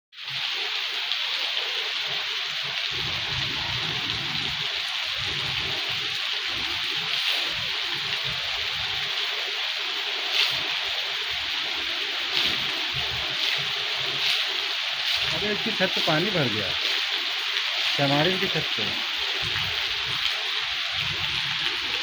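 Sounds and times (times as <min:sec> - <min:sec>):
heavy rain pouring: 0:00.2 - 0:22.0.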